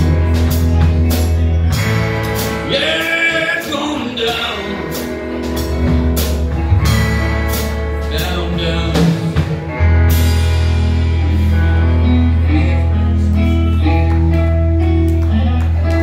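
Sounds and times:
drum kit: 0:00.0 - 0:16.0
electric guitars: 0:00.0 - 0:16.0.

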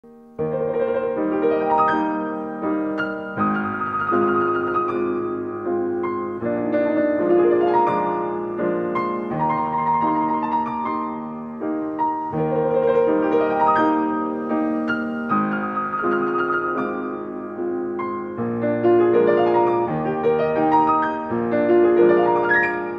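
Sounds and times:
slow piano music: 0:00.0 - 0:22.9.

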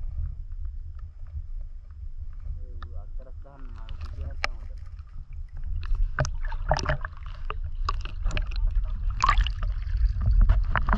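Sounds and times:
steady low rumble: 0:00.0 - 0:10.9
water splashing in a stream: 0:03.8 - 0:10.9.

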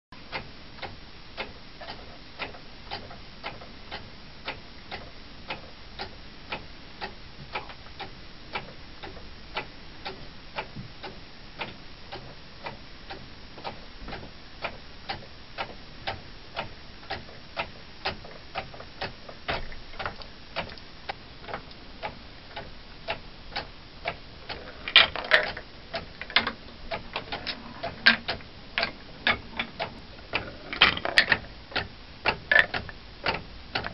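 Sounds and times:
wooden clockwork ticking: 0:00.3 - 0:33.9.

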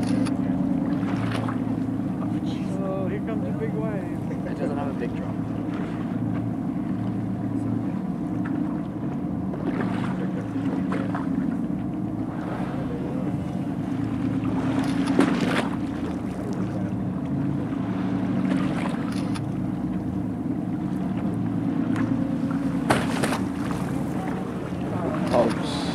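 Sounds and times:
boat engine running: 0:00.0 - 0:25.9
water noise: 0:00.0 - 0:25.9
wind: 0:00.0 - 0:25.9.

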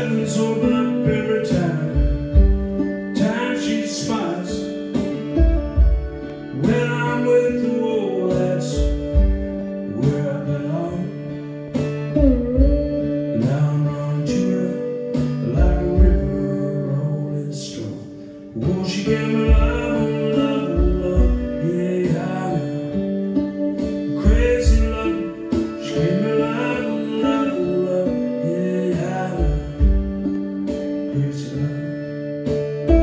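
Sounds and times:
slide guitar: 0:00.0 - 0:33.0
low thumping beat: 0:00.6 - 0:07.1, 0:08.4 - 0:10.3, 0:11.7 - 0:13.7, 0:15.2 - 0:16.5, 0:18.6 - 0:26.8, 0:29.0 - 0:31.1, 0:32.5 - 0:33.0.

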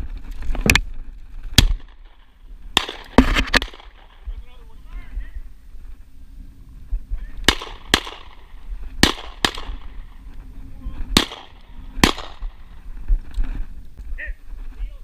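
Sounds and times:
shotgun shots with echo: 0:02.8 - 0:04.2, 0:07.4 - 0:10.0, 0:11.1 - 0:12.6.

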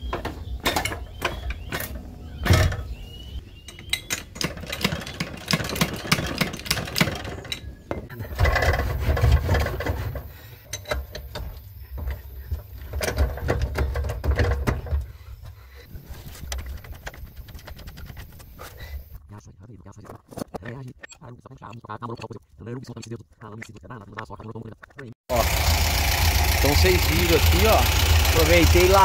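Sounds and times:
metal clanks and scraping: 0:03.6 - 0:15.2, 0:15.8 - 0:19.2
low mechanical rumble: 0:25.3 - 0:29.0.

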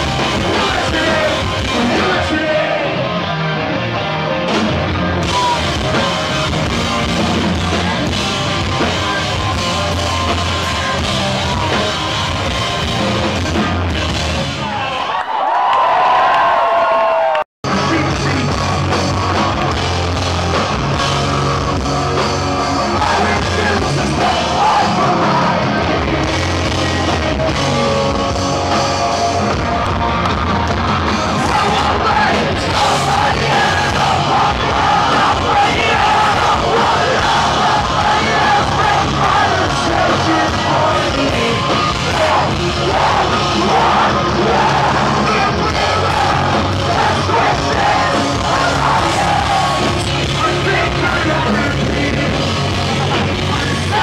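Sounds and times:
live rock band playing: 0:00.0 - 0:15.0, 0:17.6 - 0:54.0
yelled vocals: 0:00.0 - 0:15.4, 0:17.7 - 0:54.0
person singing: 0:31.3 - 0:54.0.

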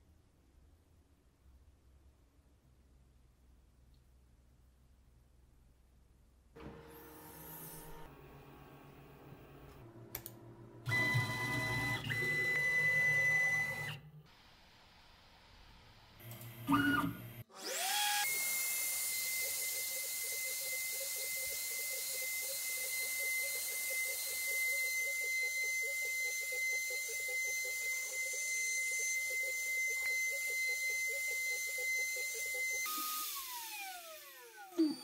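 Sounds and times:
spindle motor whining: 0:06.6 - 0:14.2, 0:16.2 - 0:35.0
cutter engraving metal: 0:16.8 - 0:35.0.

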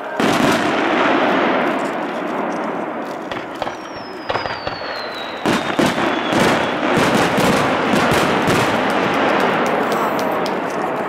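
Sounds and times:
fireworks bangs: 0:00.0 - 0:11.0
fireworks crackling: 0:00.0 - 0:11.0.

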